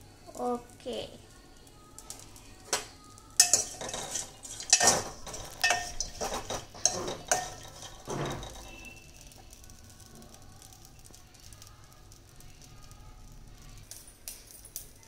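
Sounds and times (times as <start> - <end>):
spoon scraping a metal pot: 3.4 - 9.0.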